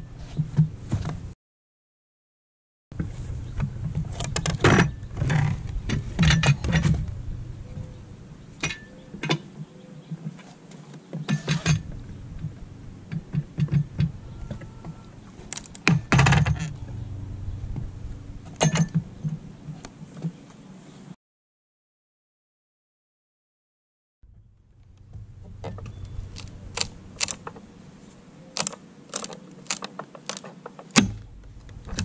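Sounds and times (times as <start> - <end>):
metal clanks: 11.2 - 12.0, 18.5 - 19.4
wood cracking: 15.4 - 16.3, 28.6 - 32.0
nails pulling free: 28.6 - 31.2.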